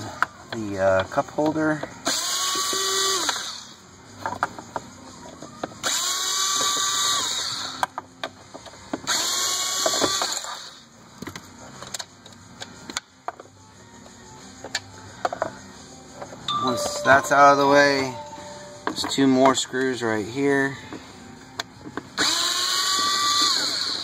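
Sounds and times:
cordless screwdriver motor whirring: 22.2 - 24.0.

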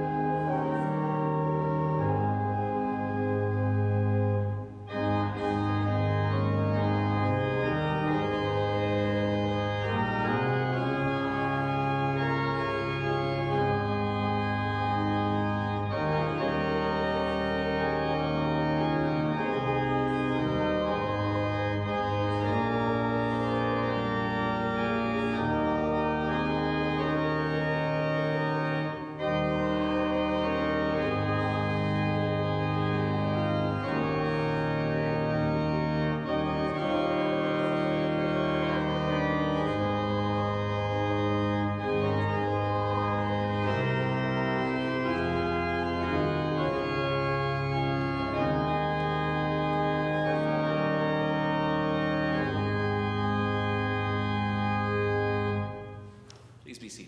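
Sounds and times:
church organ playing hymn: 0.0 - 57.0.

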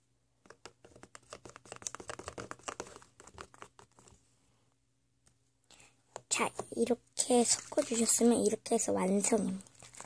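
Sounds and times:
spatula stirring sticky slime: 0.4 - 4.2, 6.1 - 10.0.

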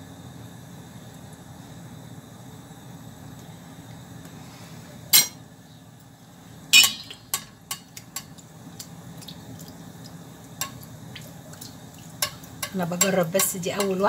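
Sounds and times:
metal spoon clinking on pot: 6.8 - 8.3, 12.2 - 14.0.

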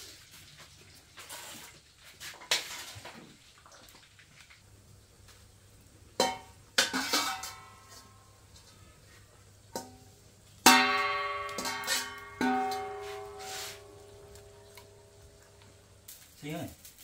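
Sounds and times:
metal bowl knocking on wok: 6.2 - 8.1, 9.7 - 10.1, 10.7 - 14.9.

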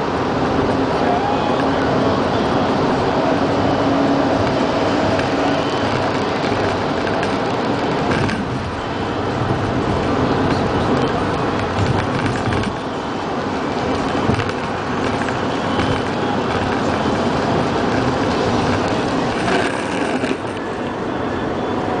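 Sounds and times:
car road and engine noise: 0.0 - 22.0.

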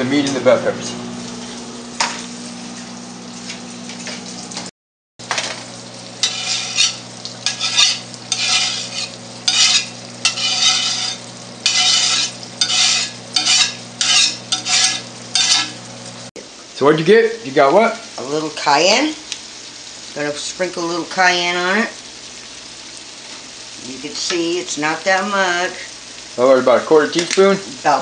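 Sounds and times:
ground beef sizzling: 0.0 - 28.0
spatula scraping a pan: 6.2 - 15.9.

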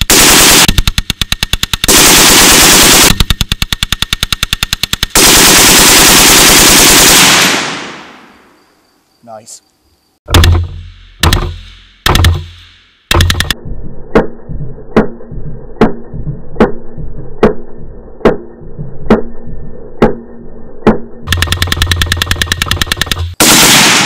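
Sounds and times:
machine gun automatic fire: 0.0 - 8.1, 21.3 - 24.0
deep drawn-out gunshot booms: 23.4 - 24.0.

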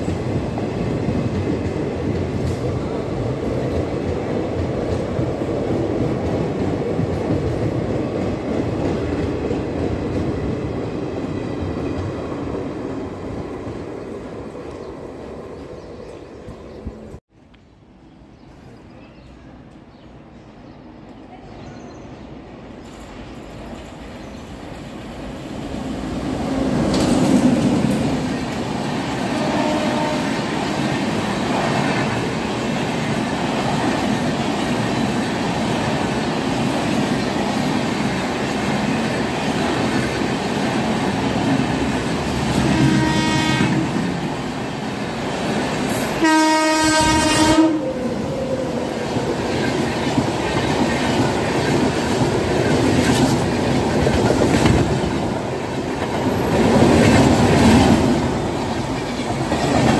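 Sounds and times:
train wheels clattering over rails: 22.8 - 46.2, 49.0 - 59.9
train horn: 29.3 - 30.5, 42.6 - 44.0, 46.2 - 48.7.

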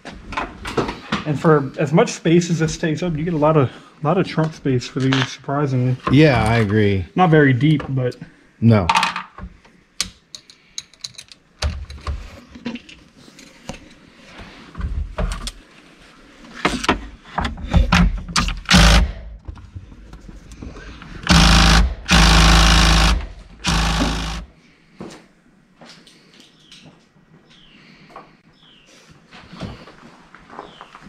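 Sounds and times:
cordless power driver running: 18.7 - 19.2, 21.2 - 24.5.

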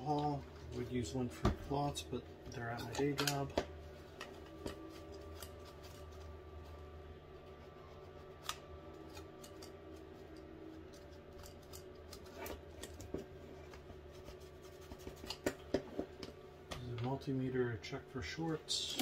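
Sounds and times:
steady low hum: 0.0 - 19.0
paper towel rubbing circuit board: 4.7 - 11.3, 13.9 - 15.4.

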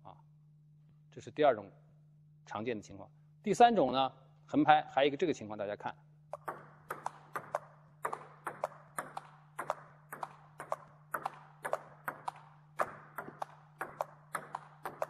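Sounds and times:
table tennis ball clicking: 6.3 - 15.0.

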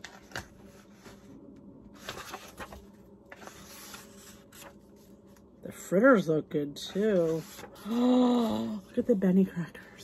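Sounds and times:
pages turning: 0.0 - 5.5, 6.9 - 8.0.

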